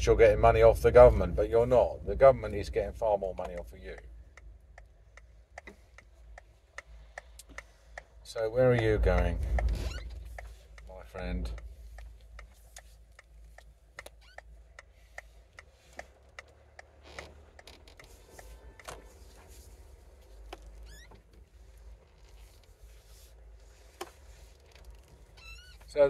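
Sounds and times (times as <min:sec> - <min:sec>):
engine and road rumble: 0:00.0 - 0:26.0
turn signal ticking: 0:00.0 - 0:26.0.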